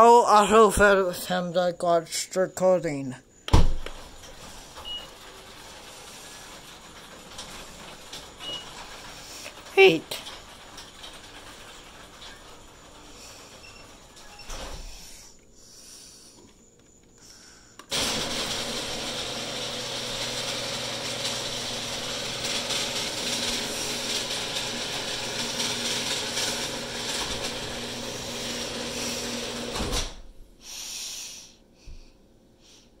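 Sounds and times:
garage door opener motor hum: 3.4s - 15.6s, 17.8s - 30.4s
garage door thump on floor: 3.5s - 4.2s.

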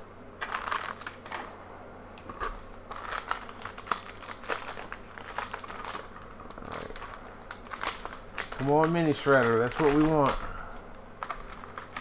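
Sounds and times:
foil pack crinkling: 0.4s - 1.5s, 2.2s - 12.0s.

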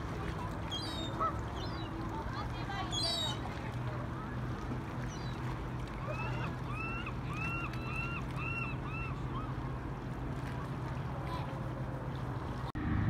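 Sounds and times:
bird calling: 2.8s - 3.4s, 6.0s - 9.6s.

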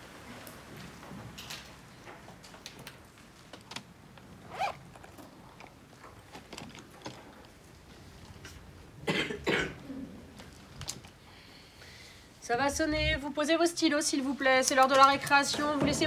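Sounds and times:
person coughing: 9.0s - 10.1s
throat clearing sound: 9.0s - 10.2s.

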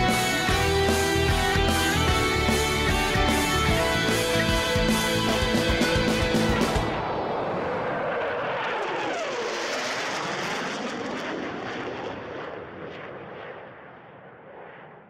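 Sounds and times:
jet aircraft flying past: 0.0s - 15.0s.

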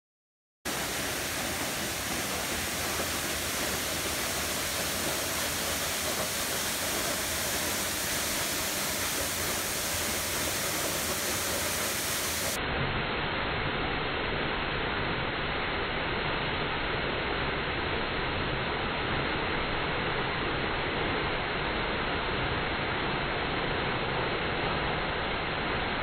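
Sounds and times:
waterfall rushing: 0.7s - 12.6s.

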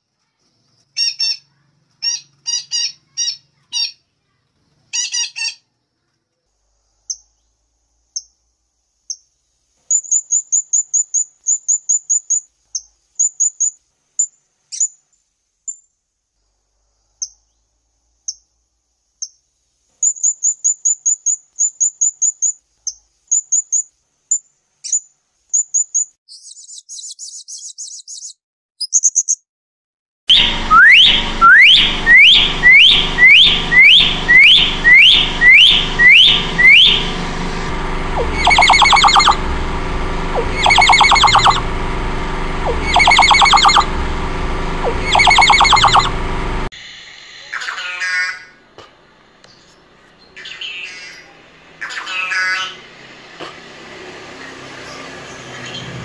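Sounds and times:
buzzy bird chatter: 0.9s - 4.0s, 38.1s - 39.5s, 40.3s - 41.7s, 42.6s - 44.0s, 44.8s - 46.2s, 47.5s - 48.6s, 50.3s - 52.8s
myna rising whistles: 30.3s - 37.1s, 38.1s - 39.4s, 40.3s - 41.6s, 42.6s - 44.0s, 44.8s - 46.2s
parrot high tsit calls: 38.2s - 39.4s, 40.4s - 41.6s.

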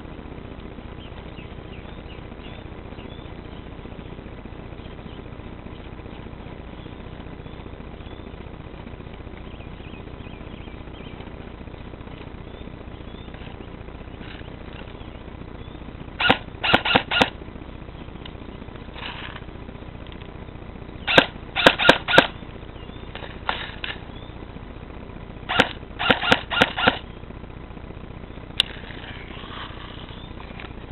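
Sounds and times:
rifle firing shots: 16.2s - 17.4s, 21.1s - 22.4s, 25.5s - 27.0s.

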